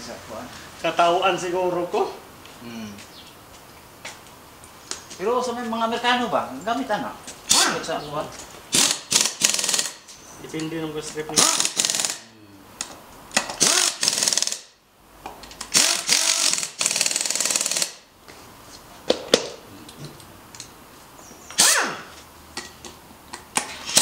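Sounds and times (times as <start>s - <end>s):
impact wrench hammering: 8.7s - 10.1s, 11.3s - 12.3s, 13.3s - 14.7s, 15.6s - 18.0s.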